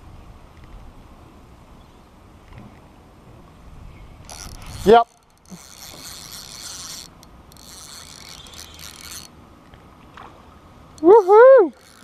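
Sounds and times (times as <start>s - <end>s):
fishing reel gears whirring: 4.2s - 9.4s, 10.9s - 12.0s.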